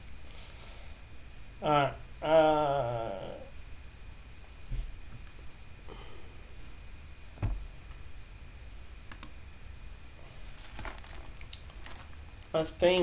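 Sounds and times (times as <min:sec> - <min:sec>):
faint room hiss: 0:00.0 - 0:13.0
soft thump: 0:07.4 - 0:07.6.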